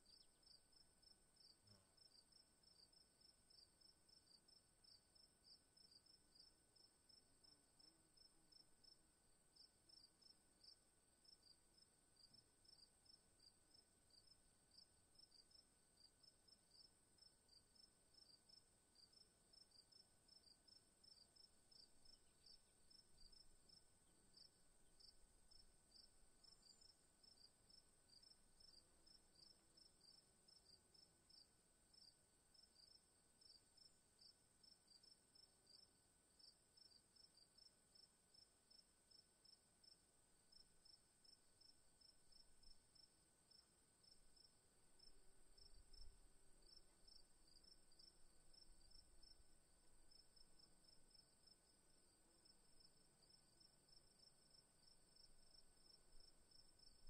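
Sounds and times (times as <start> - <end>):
faint high-pitched chirping: 0.0 - 6.5, 18.2 - 30.7.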